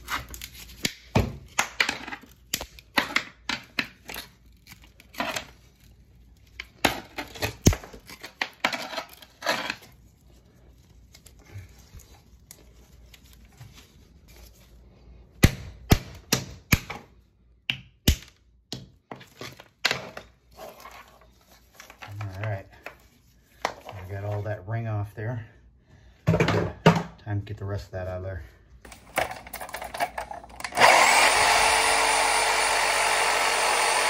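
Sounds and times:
hand tools chipping and scraping: 0:06.9 - 0:10.0, 0:28.9 - 0:34.0.

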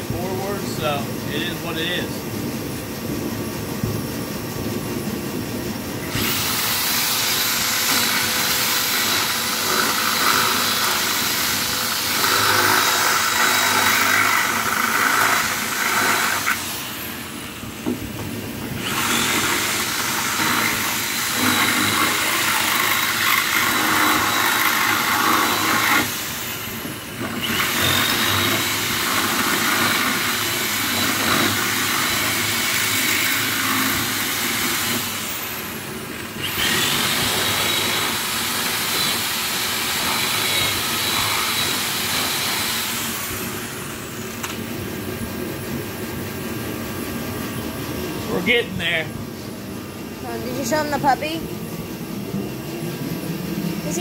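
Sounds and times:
electric drill drilling sheet metal: 0:06.0 - 0:17.7, 0:18.7 - 0:44.7.

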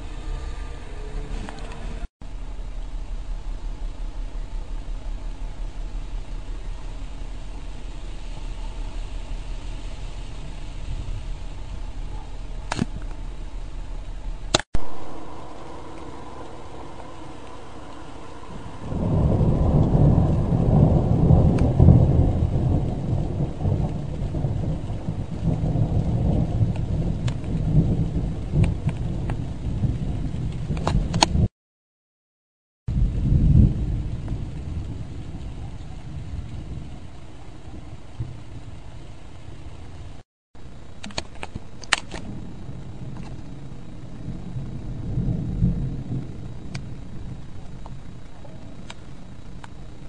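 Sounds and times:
rolling thunder: 0:00.0 - 0:31.5, 0:32.9 - 0:39.0, 0:42.2 - 0:50.0
steady rain: 0:00.0 - 0:31.5, 0:32.9 - 0:50.0
sharp clicks: 0:41.0 - 0:42.3.

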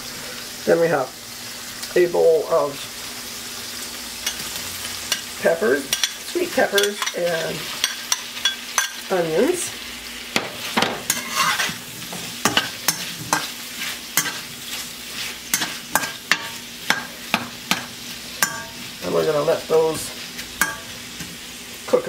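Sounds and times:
vegetables sizzling in a wok: 0:00.0 - 0:22.0
metal spatula scraping a pan: 0:04.2 - 0:09.1, 0:10.5 - 0:21.3.

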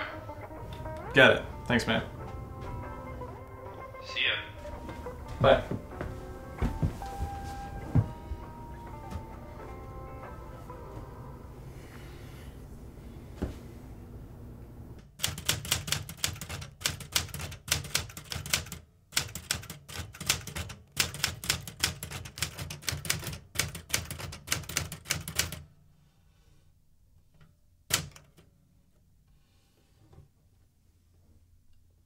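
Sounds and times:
typewriter keys typing: 0:15.1 - 0:25.6, 0:27.9 - 0:28.4
sharp typewriter clack: 0:15.2 - 0:25.6, 0:27.9 - 0:28.4.

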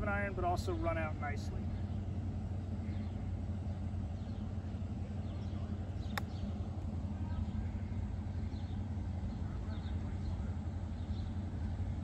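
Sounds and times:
steady low hum: 0:00.0 - 0:12.0
golf club striking ball: 0:06.1 - 0:06.4.

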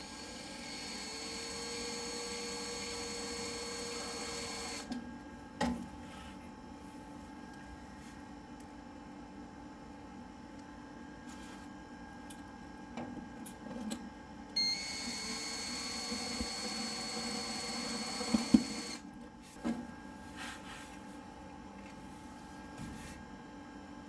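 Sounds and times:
power drill driving screw: 0:00.4 - 0:04.9, 0:14.6 - 0:19.0.

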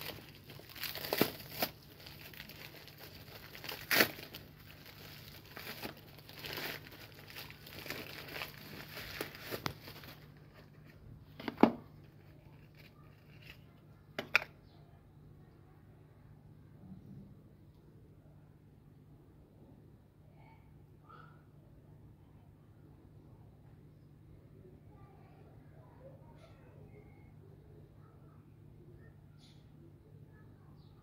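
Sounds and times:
bubble wrap crinkling: 0:00.0 - 0:13.7.

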